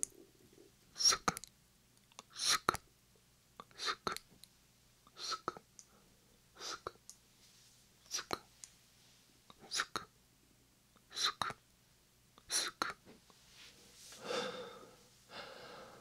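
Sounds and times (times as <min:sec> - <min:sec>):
whispered hisses: 0:00.9 - 0:01.4, 0:02.2 - 0:02.8, 0:03.6 - 0:04.2, 0:05.1 - 0:05.6, 0:06.6 - 0:07.0, 0:08.0 - 0:08.5, 0:09.5 - 0:10.1, 0:11.0 - 0:11.6, 0:12.4 - 0:13.0
wet mouth clicks: 0:03.6 - 0:04.3, 0:08.1 - 0:08.4.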